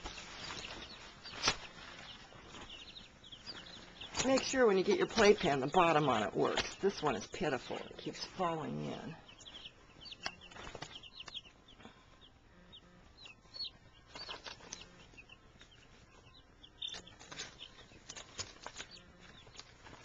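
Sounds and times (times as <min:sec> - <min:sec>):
scuffs and rustles: 0:00.0 - 0:05.5
chicks peeping: 0:00.0 - 0:20.0.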